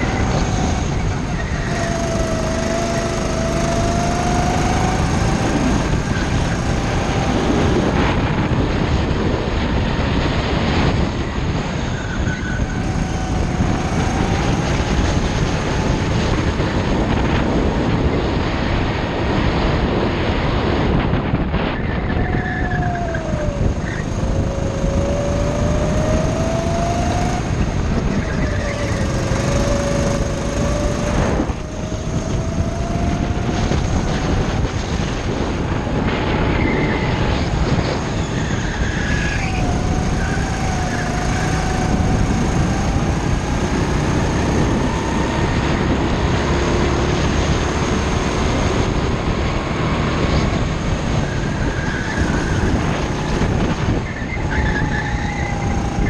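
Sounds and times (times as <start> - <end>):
go-kart engine revving: 0.0 - 56.0
wind and road noise: 0.0 - 56.0.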